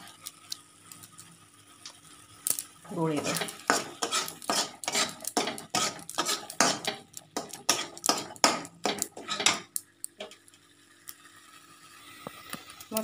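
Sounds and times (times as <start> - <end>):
wooden spatula scraping a pan: 3.0 - 10.4.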